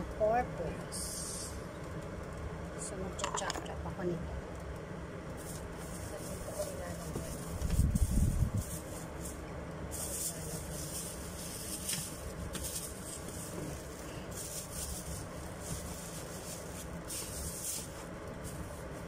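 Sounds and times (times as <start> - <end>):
steady low hum: 0.0 - 19.0
plastic bag rustling: 5.4 - 19.0.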